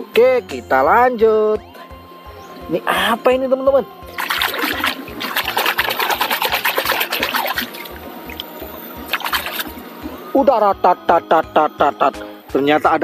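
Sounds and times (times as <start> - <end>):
background music with low beat: 0.0 - 13.0
toy splashing in water: 4.2 - 9.8.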